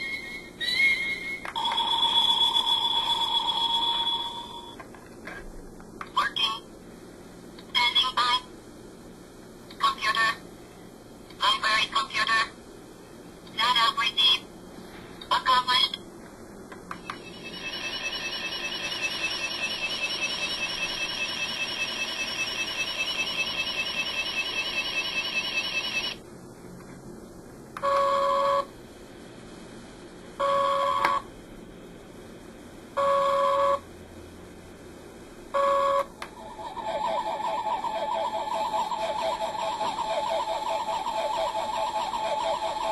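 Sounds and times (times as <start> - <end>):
warbling electronic tone: 17.1 - 26.2, 36.3 - 42.9.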